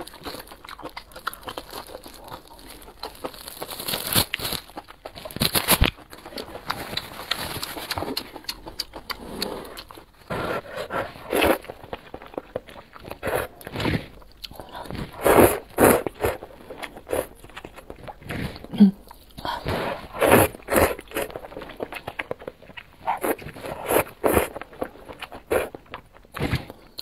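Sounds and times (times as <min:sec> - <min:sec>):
chewing: 0:00.0 - 0:27.0
slurping noodles: 0:09.1 - 0:11.8, 0:13.1 - 0:17.4, 0:19.4 - 0:21.6, 0:23.0 - 0:25.8.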